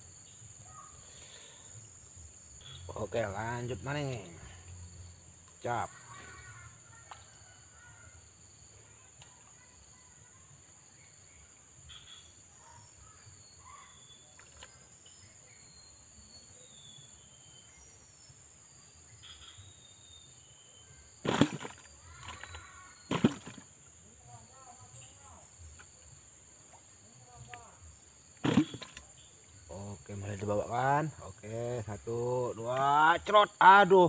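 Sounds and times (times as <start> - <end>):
faint bird chirps: 0.0 - 1.9, 2.5 - 32.7
insects buzzing: 0.0 - 34.0.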